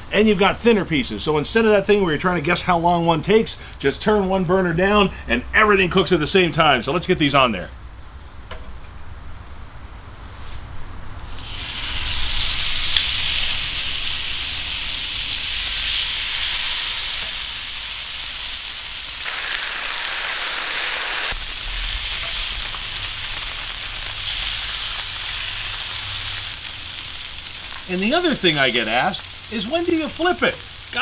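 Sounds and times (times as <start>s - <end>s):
fish sizzling on a griddle: 11.2s - 31.0s.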